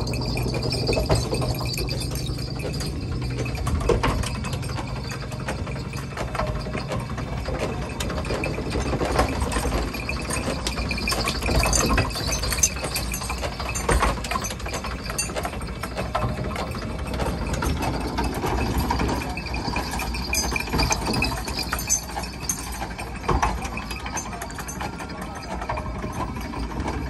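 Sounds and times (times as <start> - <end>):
iron gear wheel rattling: 0.0 - 27.0.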